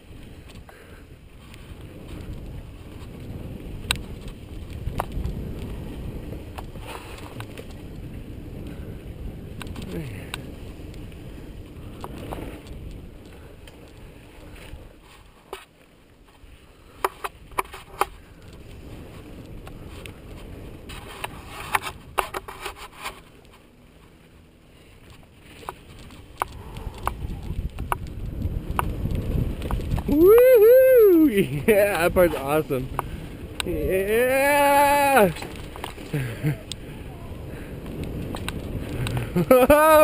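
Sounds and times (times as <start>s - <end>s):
bike rattling over bumps: 0.0s - 40.0s
tyres rumbling on dirt trail: 0.0s - 40.0s
wind: 0.0s - 40.0s.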